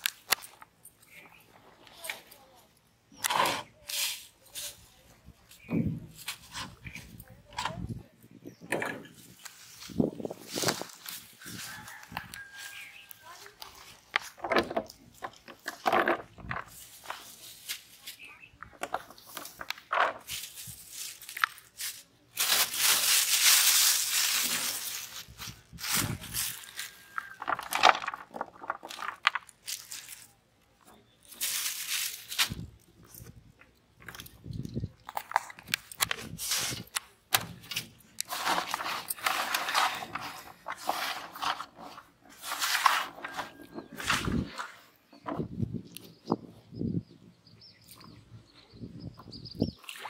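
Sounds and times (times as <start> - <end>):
gritty scraping and rustling: 3.1 - 30.4, 31.2 - 46.1
plastic bag crinkling: 20.3 - 30.3.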